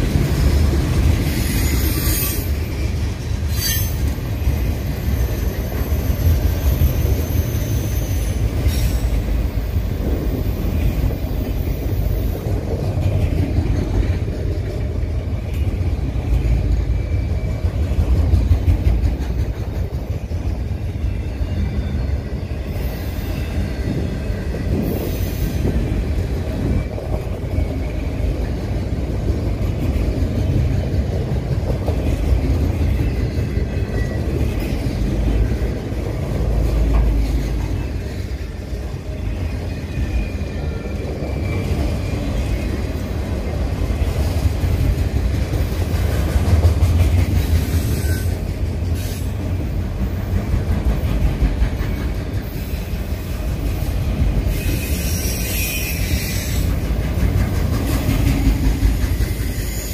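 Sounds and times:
train wheels rumbling on rail: 0:00.0 - 0:59.9
high wheel squeal: 0:01.2 - 0:09.4, 0:37.1 - 0:42.9, 0:47.6 - 0:49.4, 0:54.5 - 0:56.9, 0:59.2 - 0:59.9.

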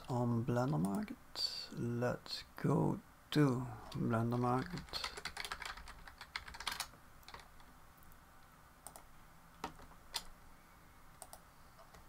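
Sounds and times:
keyboard typing: 0:03.9 - 0:07.7, 0:08.8 - 0:10.3.

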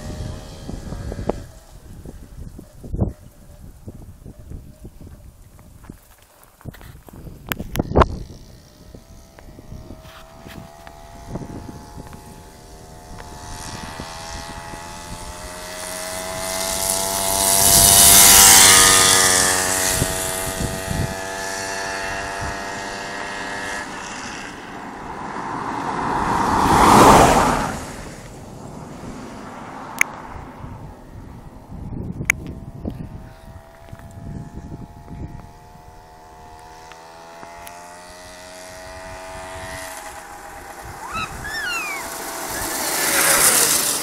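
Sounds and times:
motorcycle passing by: 0:00.0 - 0:02.5, 0:07.7 - 0:44.0
minibus passing: 0:23.9 - 0:31.7, 0:40.1 - 0:44.0.

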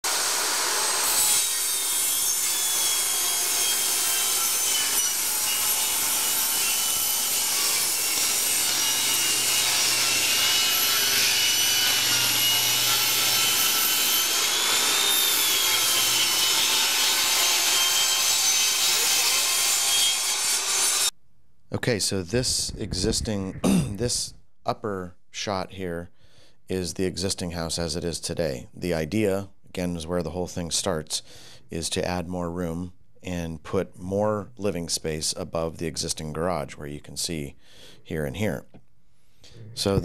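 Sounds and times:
saw cutting wood: 0:00.0 - 0:21.1.

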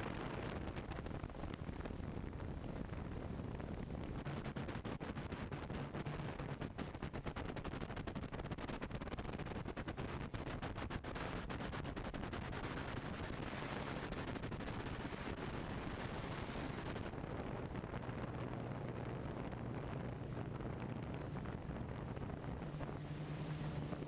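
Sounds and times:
low steady hum: 0:00.0 - 0:24.0
drone rotor noise: 0:17.1 - 0:24.0.

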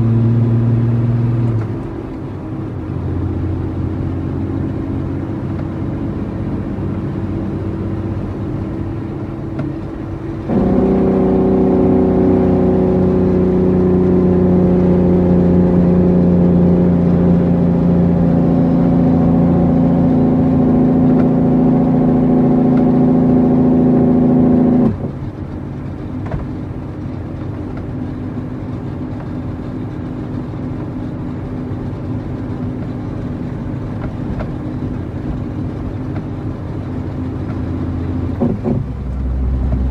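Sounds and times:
diesel truck engine running: 0:23.2 - 0:39.9.

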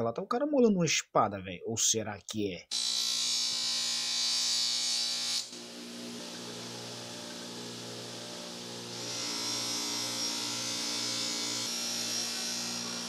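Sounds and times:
knife grinding on wheel: 0:02.7 - 0:13.0
grinder motor hum: 0:05.2 - 0:13.0.

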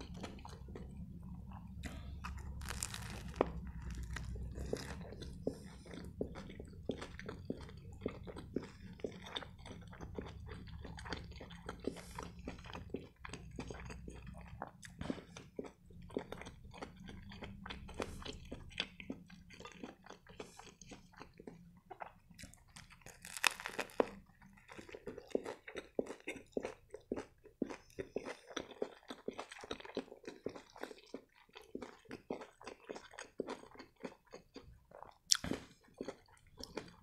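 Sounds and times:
wet chewing mouth clicks: 0:00.0 - 0:37.0
crunchy bite into wrap: 0:01.9 - 0:05.2, 0:22.4 - 0:24.2.

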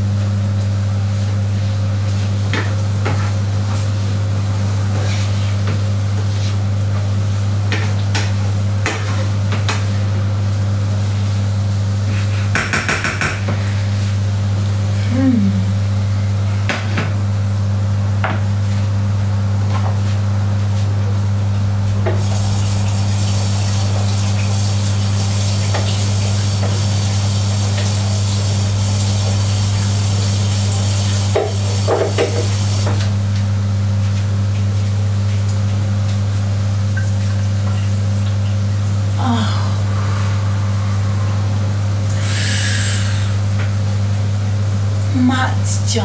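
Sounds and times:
loud low electrical hum: 0:00.0 - 0:46.0
hiss: 0:42.2 - 0:43.4.

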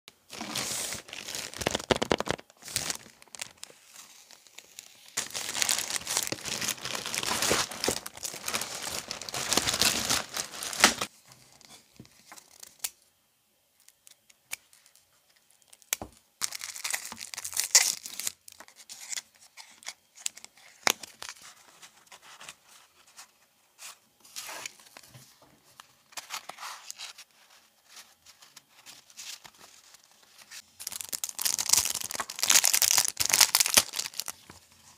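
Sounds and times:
paper packaging rustling: 0:00.3 - 0:11.1, 0:26.1 - 0:34.9
plastic bag crinkling and tearing: 0:00.3 - 0:11.1, 0:15.6 - 0:19.2, 0:30.6 - 0:34.5.

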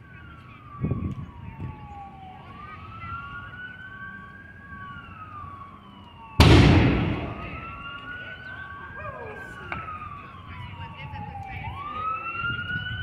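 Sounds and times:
siren wailing: 0:00.0 - 0:13.0
loud explosion: 0:06.4 - 0:07.7.

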